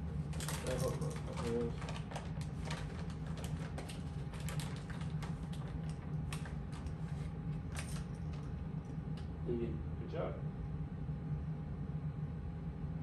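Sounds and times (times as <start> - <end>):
steady low hum: 0.0 - 13.0
shredded cheese crinkling: 0.3 - 8.5.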